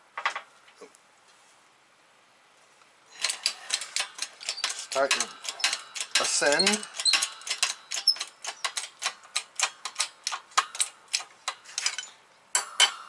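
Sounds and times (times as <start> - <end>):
hand pump rapid clicking: 3.2 - 12.9.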